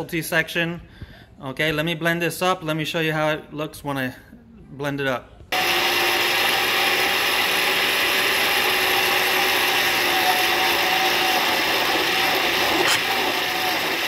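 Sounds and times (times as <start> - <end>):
blender motor running: 5.5 - 14.0.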